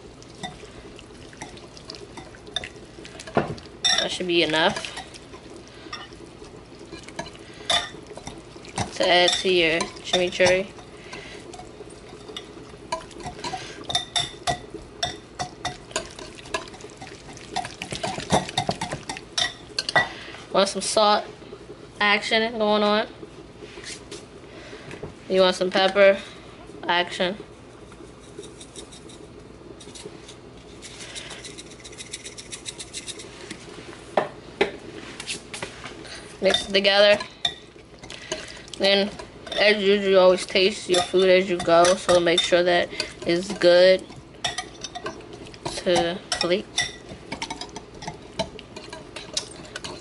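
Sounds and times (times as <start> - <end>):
utensil clinking against cookware: 1.4 - 6.2, 6.8 - 20.2, 36.4 - 50.0.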